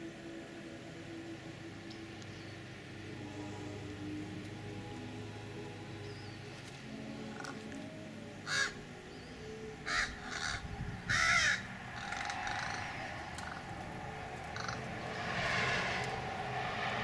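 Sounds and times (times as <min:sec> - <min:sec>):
crow cawing: 0:08.4 - 0:08.8, 0:09.8 - 0:13.8, 0:14.5 - 0:14.9.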